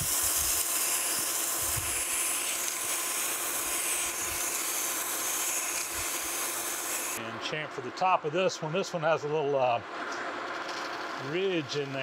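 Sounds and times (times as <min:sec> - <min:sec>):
file rasping on metal: 0:00.0 - 0:07.2
lathe running: 0:00.0 - 0:07.2.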